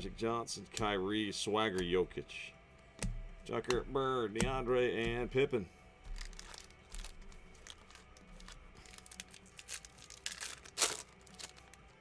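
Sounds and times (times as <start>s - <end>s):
wrappers crinkling: 6.1s - 12.0s
packet tearing open: 6.2s - 11.9s.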